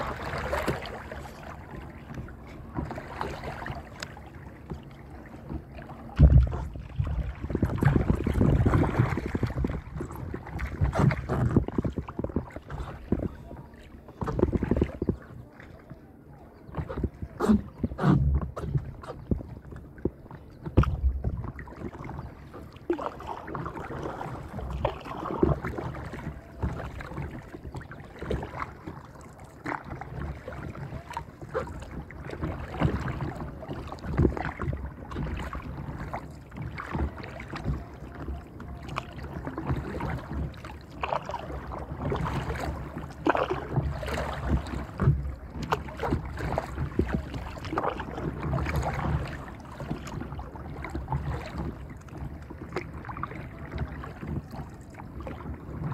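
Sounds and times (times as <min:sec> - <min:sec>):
water splashing against paddleboard: 0:00.0 - 0:55.9
wind rumbling on microphone: 0:04.6 - 0:55.9.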